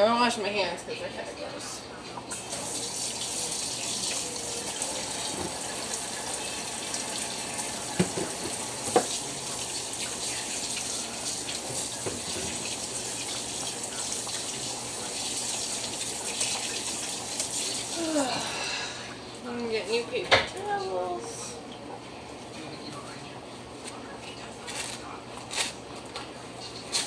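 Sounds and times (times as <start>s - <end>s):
water running from faucet: 2.3s - 21.1s.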